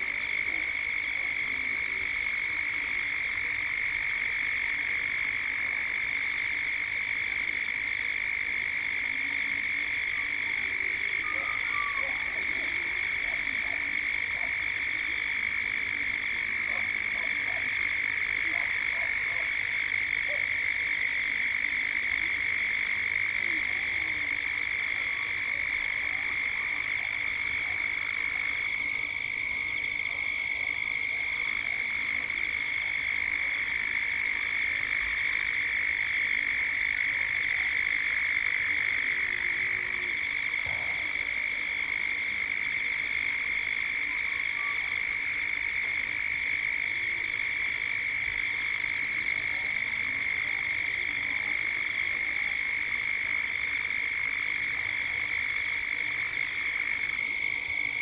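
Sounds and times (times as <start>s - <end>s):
cicada chorus: 0.0s - 58.0s
faint animal calls: 6.5s - 42.6s.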